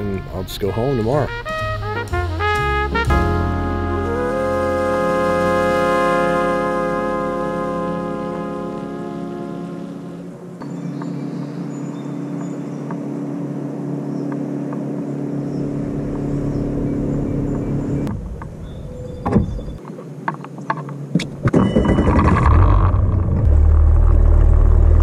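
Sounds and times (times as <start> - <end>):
boat motor humming: 1.3 - 19.8
knocks and thuds on boat: 19.2 - 19.8.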